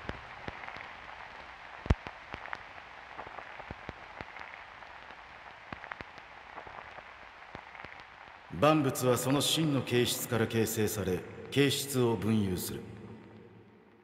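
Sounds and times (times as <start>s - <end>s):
crackling clicks: 0.0s - 8.5s
soft steady hiss: 0.0s - 14.0s.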